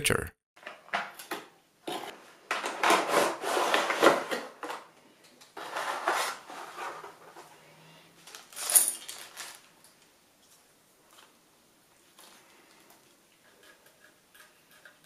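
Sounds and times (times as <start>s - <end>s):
cardboard and plastic rustling: 1.9s - 4.9s, 5.6s - 7.5s, 8.2s - 9.7s.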